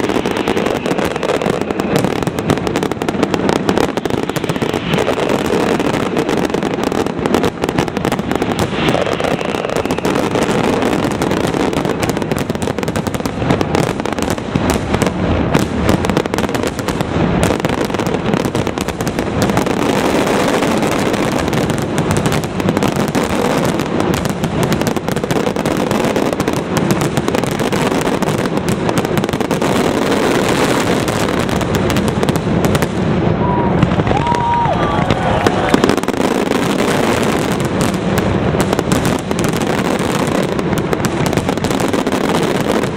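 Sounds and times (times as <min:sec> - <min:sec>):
firework shells bursting: 0:00.0 - 0:30.9.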